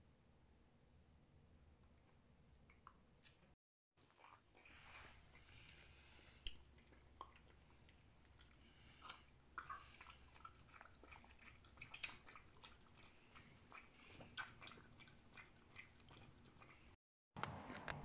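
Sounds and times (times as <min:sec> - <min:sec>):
dog lapping milk from metal bowl: 0:04.1 - 0:18.0
outdoor noise: 0:17.4 - 0:18.0.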